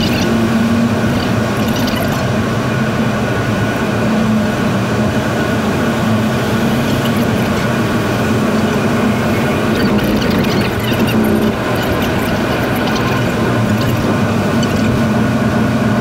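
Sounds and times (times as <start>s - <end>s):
road and tyre noise in car: 0.0s - 16.0s.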